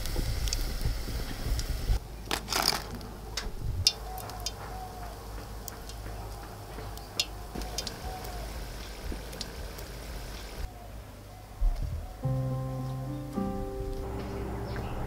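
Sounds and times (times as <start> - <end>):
light ticks and crackles: 0.0 - 10.7
fritters clattering into basket: 2.3 - 3.1.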